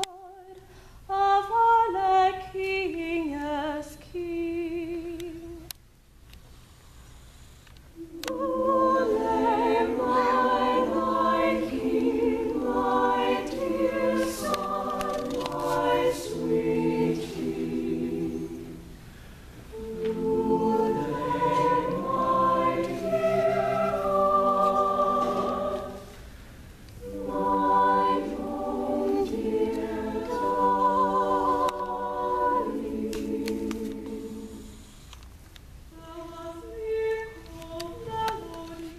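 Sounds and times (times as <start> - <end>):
choir singing a cappella: 8.0 - 26.3, 27.0 - 34.9, 36.0 - 38.9.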